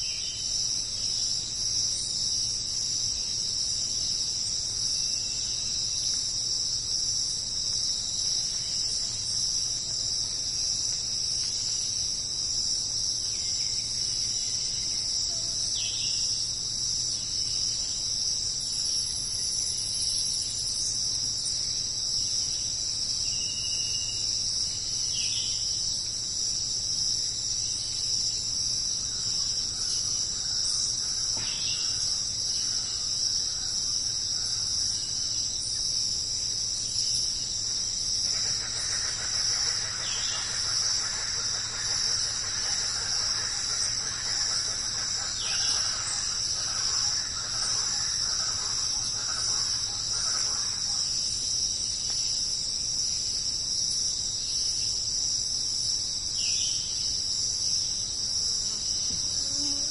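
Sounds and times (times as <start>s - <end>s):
insects shrill drone: 0.0s - 59.9s.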